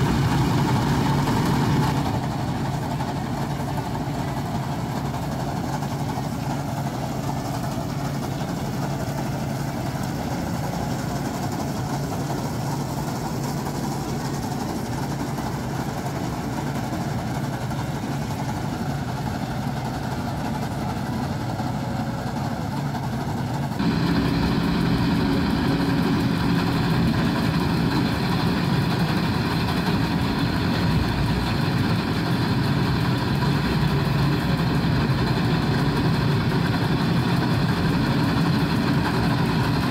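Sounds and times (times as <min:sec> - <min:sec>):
combine harvester engine hum: 0:00.0 - 0:39.9
threshing machinery: 0:23.8 - 0:39.9.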